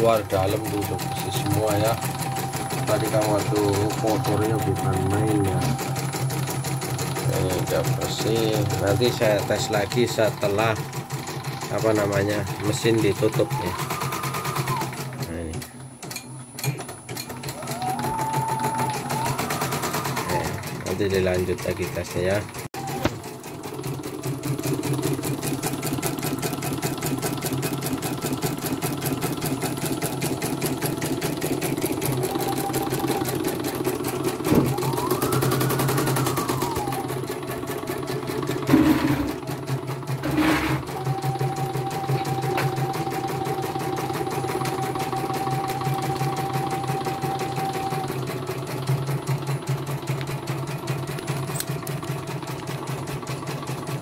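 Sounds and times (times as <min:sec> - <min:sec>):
embroidery machine needle clatter: 0:00.0 - 0:17.8
faint machine whine: 0:00.0 - 0:23.4, 0:31.2 - 0:39.4, 0:40.3 - 0:48.6.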